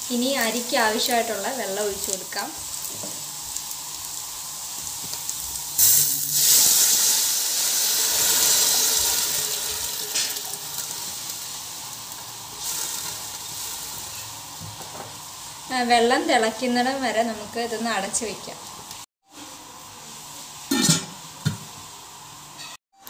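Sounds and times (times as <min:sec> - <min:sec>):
loud hiss of water on hot fat: 0:00.0 - 0:17.0
low sizzle of frying: 0:00.0 - 0:23.0.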